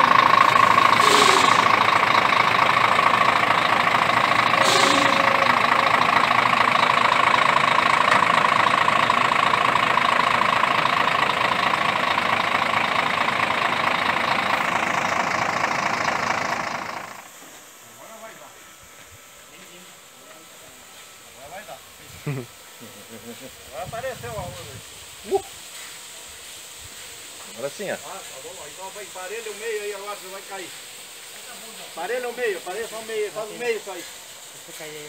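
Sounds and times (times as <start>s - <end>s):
machine running with high whine: 0.1s - 3.6s, 4.4s - 6.2s.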